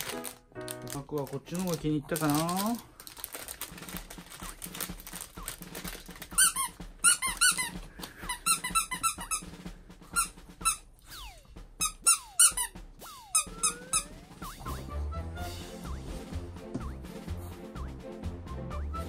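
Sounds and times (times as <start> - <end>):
small dog whining: 13.1 - 14.3.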